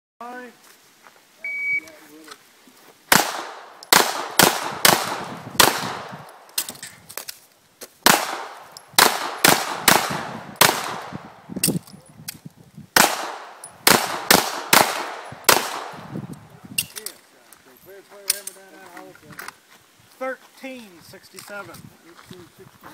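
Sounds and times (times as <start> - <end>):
handgun shots: 3.1 - 6.8, 8.0 - 11.8, 13.0 - 16.0.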